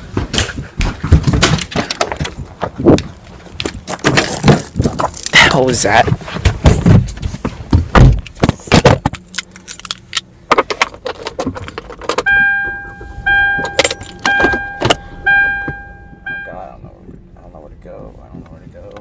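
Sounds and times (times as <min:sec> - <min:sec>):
knocks and clattering: 0:00.0 - 0:12.5
car warning chime pinging: 0:12.2 - 0:16.8.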